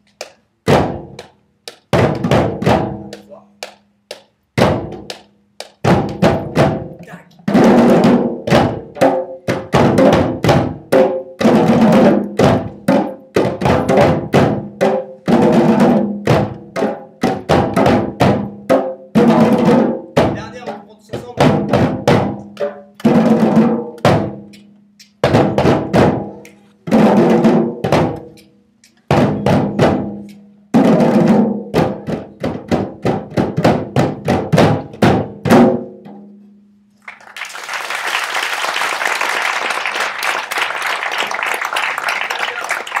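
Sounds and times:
djembes played by hand: 0.2s - 36.4s
applause: 37.0s - 43.0s.

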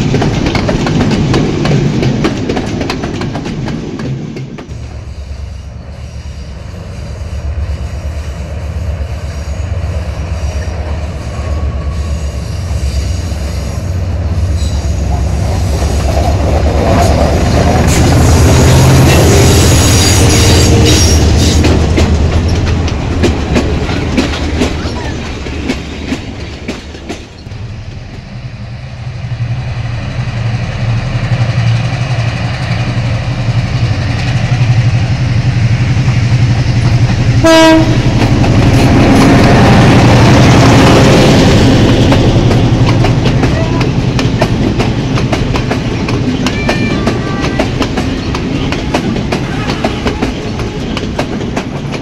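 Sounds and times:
train wheels clattering: 0.0s - 5.1s, 14.6s - 28.4s, 35.8s - 52.0s
diesel locomotive engine drone: 0.0s - 52.0s.

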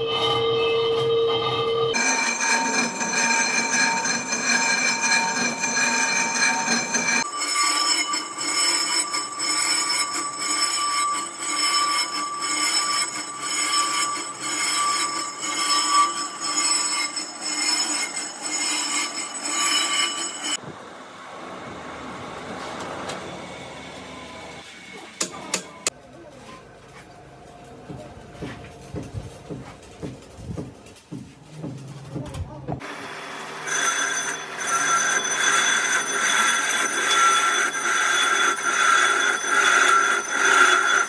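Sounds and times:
lathe tool scraping metal: 0.0s - 20.6s, 32.8s - 41.0s
machine noise: 0.0s - 26.0s, 31.7s - 41.0s.

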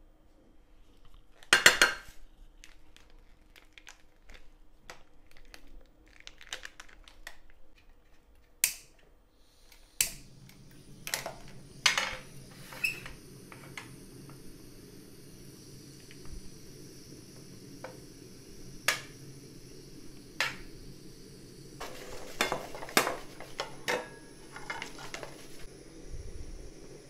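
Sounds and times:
steady low hiss: 8.9s - 27.0s.

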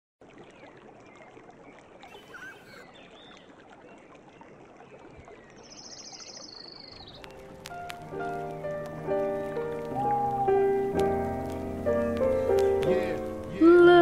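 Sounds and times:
steady outdoor hiss: 5.4s - 14.0s
small bird chirps: 5.6s - 12.9s
fast high bird trill: 9.0s - 10.9s.

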